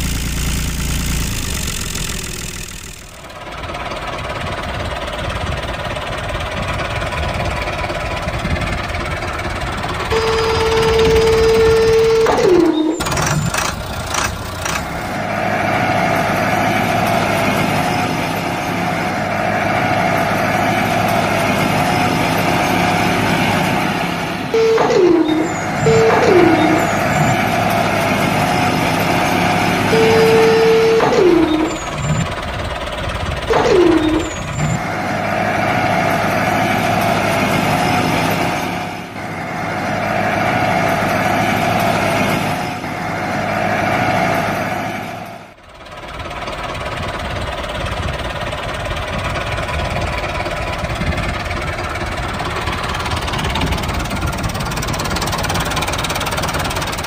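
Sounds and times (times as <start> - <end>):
tractor engine drone: 0.0 - 57.0
falling pitch tones: 10.1 - 16.2, 24.5 - 29.0, 29.9 - 32.5, 33.4 - 34.9.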